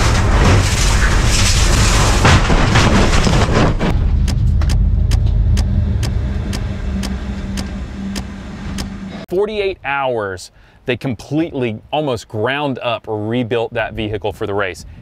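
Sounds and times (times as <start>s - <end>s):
race car road and wind rush: 3.9s - 9.2s
low steady hum: 3.9s - 10.8s
sharp ticks: 4.2s - 8.9s.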